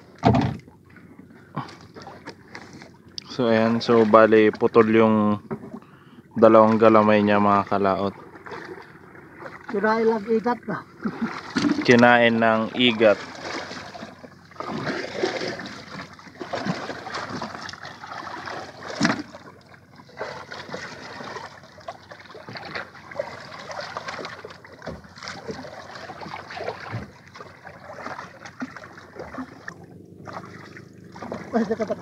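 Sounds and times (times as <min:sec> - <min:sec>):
water lapping against boat hull: 0:00.0 - 0:32.0
knocks on boat: 0:00.2 - 0:00.6.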